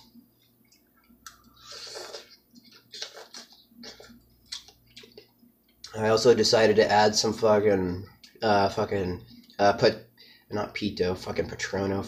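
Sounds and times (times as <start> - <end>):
man slurping and chewing noodles: 0.0 - 5.8.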